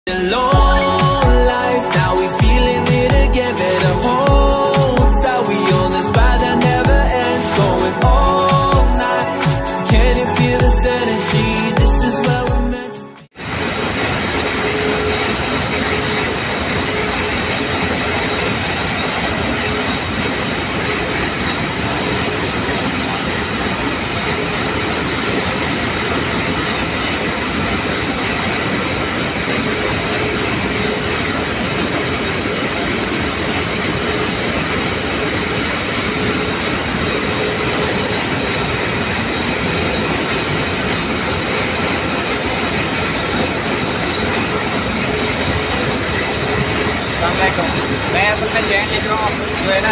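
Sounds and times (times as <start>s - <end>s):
knitting machines clattering: 13.4s - 49.9s.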